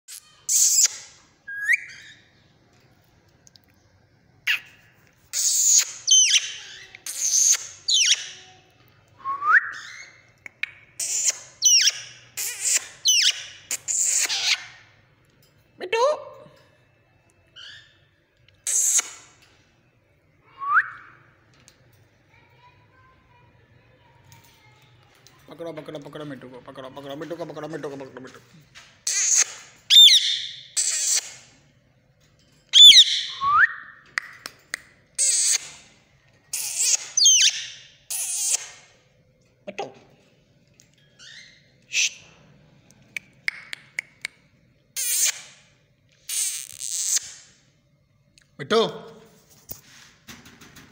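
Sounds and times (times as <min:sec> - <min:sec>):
parakeet screeching: 0:00.1 - 0:01.0, 0:05.3 - 0:08.5, 0:11.0 - 0:14.8, 0:29.0 - 0:31.3, 0:36.5 - 0:38.8.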